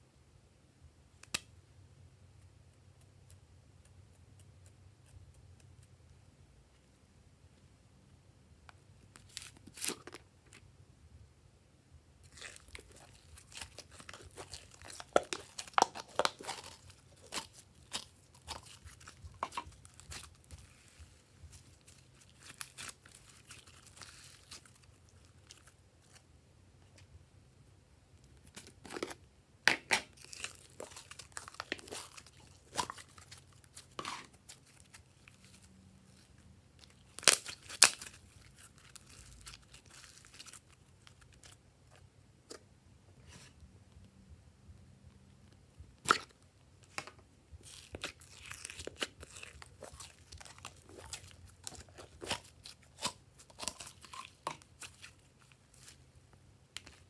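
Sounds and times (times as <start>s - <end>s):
slime crackling and popping: 12.2s - 26.2s, 29.7s - 41.6s, 46.0s - 56.0s.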